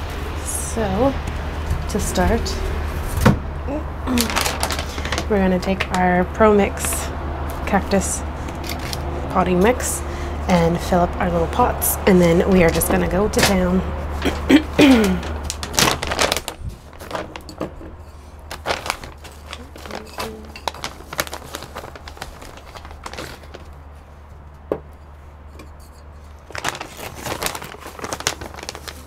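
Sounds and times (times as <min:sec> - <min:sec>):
bag crinkling and rustling: 0:04.1 - 0:07.6, 0:08.3 - 0:09.2, 0:12.7 - 0:24.5, 0:26.2 - 0:29.0.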